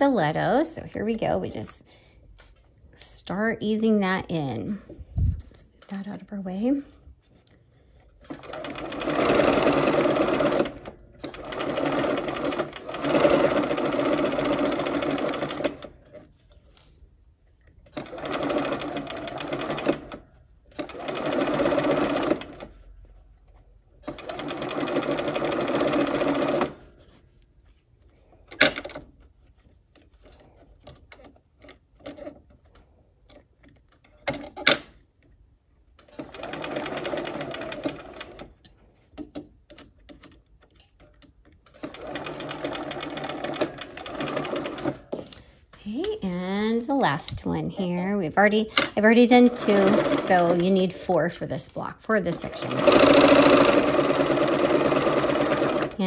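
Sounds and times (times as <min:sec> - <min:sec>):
sewing machine stitching: 0:08.2 - 0:16.3, 0:17.8 - 0:22.9, 0:24.0 - 0:26.9, 0:36.0 - 0:38.6, 0:41.1 - 0:45.3, 0:47.5 - 0:56.0.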